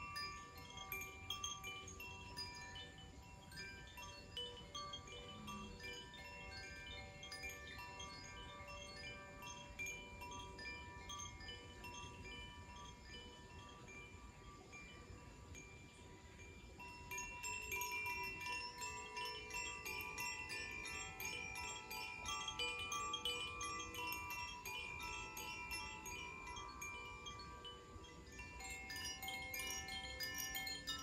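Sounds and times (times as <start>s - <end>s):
bamboo wind chimes tinkling: 0.0s - 31.0s.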